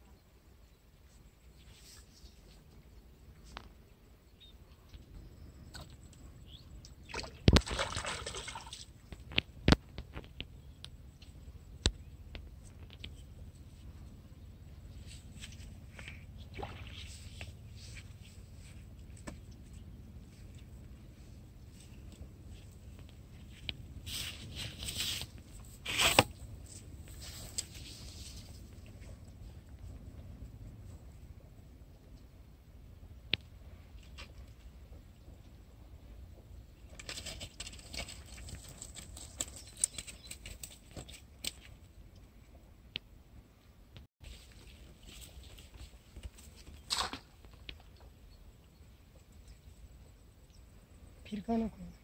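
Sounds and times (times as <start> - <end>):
fish splashing in water: 7.0 - 8.9, 16.5 - 17.1
rustling: 16.8 - 29.9.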